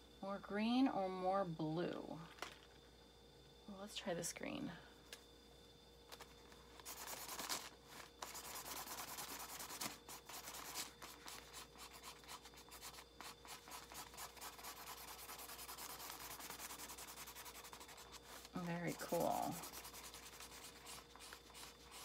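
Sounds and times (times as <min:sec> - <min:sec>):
marker scribbling on paper: 0:08.2 - 0:22.0.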